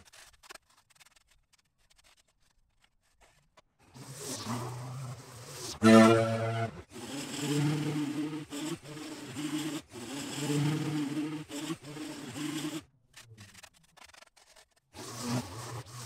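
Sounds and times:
gas-powered lawn tool running: 4.0 - 12.8.

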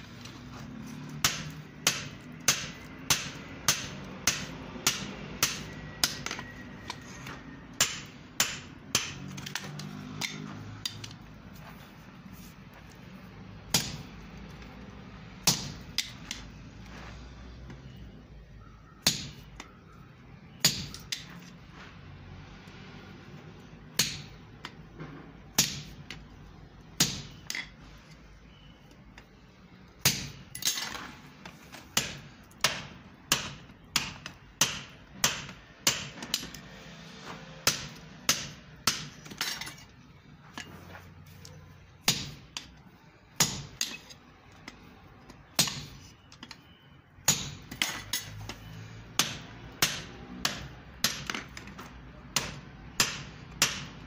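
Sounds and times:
hammer striking metal on anvil: 1.2 - 11.1, 47.2 - 48.6.

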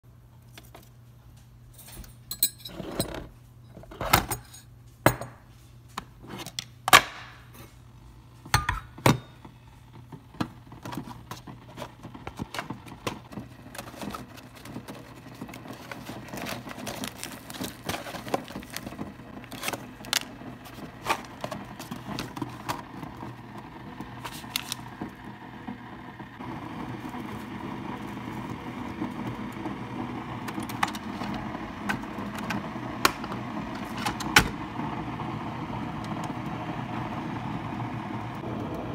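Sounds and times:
steady brewer noise: 7.9 - 38.9
packet crinkling: 12.3 - 23.3, 24.2 - 25.0.

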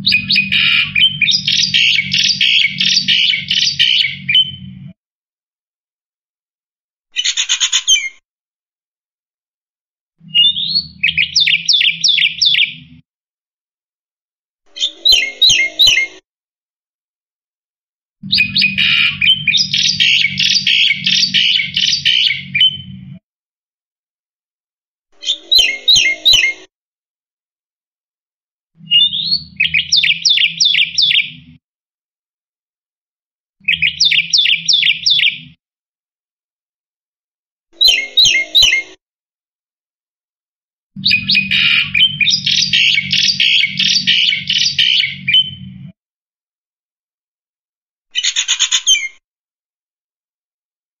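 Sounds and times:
starling chattering song: 0.0 - 4.6, 18.2 - 22.9, 41.0 - 45.6.

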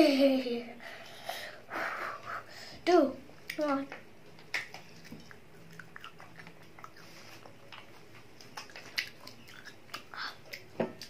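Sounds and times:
child chewing: 4.3 - 11.0.

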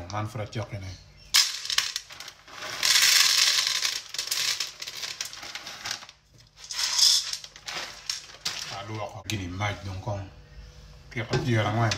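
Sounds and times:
dried beans pouring into pot: 1.4 - 9.0
plastic bag crinkling: 1.9 - 9.1.

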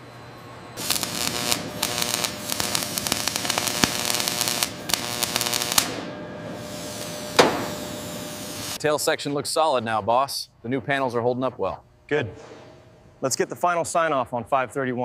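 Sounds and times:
steady hum: 0.2 - 8.8
loud hissing crackling noise: 0.8 - 8.8.

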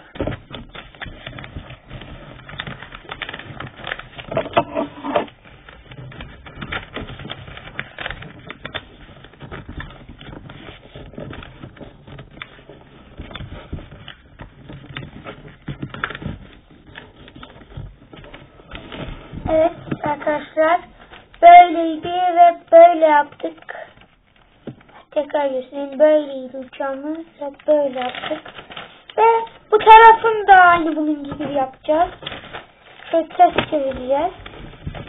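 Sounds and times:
paper rustling and crackling: 0.0 - 35.0.

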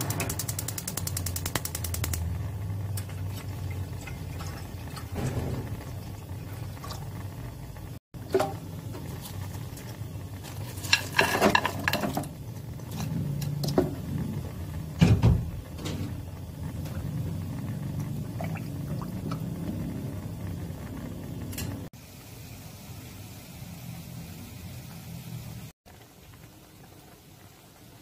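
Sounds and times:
steady low rumble: 0.0 - 8.0.

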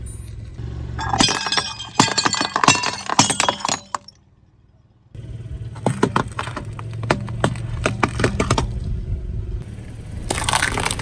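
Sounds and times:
car engine idling: 4.4 - 11.0
eggplants crunching under tyre: 5.7 - 8.9, 10.2 - 11.0.

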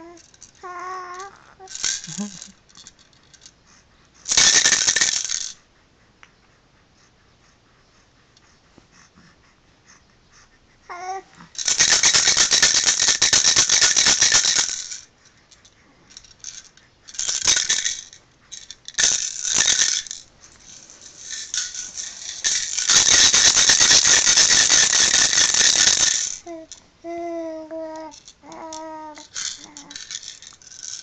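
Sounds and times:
baby cooing: 0.0 - 2.4, 10.9 - 11.5, 26.4 - 30.0
plastic toy maraca rattling: 0.0 - 3.5, 4.2 - 5.6, 11.6 - 26.8, 27.8 - 31.0.

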